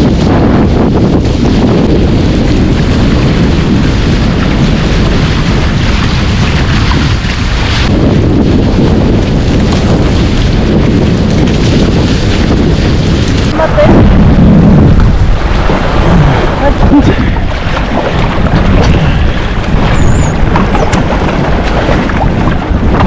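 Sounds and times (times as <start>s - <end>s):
water rushing past hulls: 0.0s - 23.0s
wind buffeting microphone: 0.0s - 23.0s.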